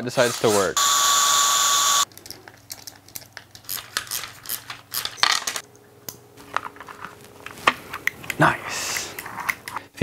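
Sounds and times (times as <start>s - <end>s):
cordless drill running: 0.8s - 2.0s.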